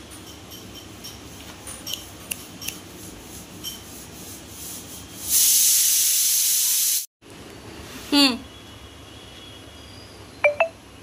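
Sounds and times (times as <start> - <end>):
loud steady hiss: 5.3 - 7.1.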